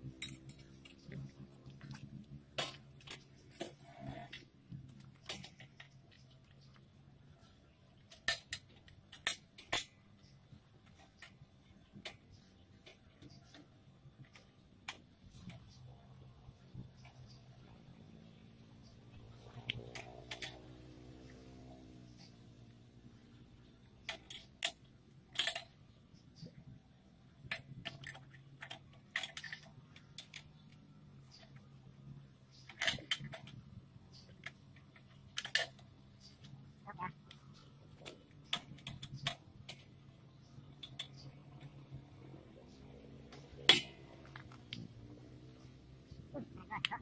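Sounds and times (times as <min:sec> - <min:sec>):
metallic clicks and knocks: 0:23.3 - 0:26.7, 0:27.3 - 0:36.6.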